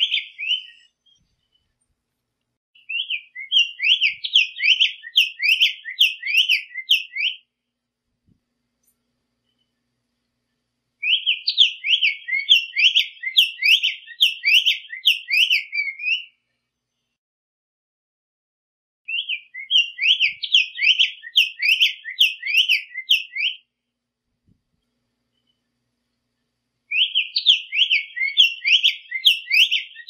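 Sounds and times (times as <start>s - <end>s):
bird singing whistled notes: 0.0s - 1.3s, 2.8s - 7.5s, 11.0s - 16.4s, 19.1s - 23.7s, 26.9s - 30.0s.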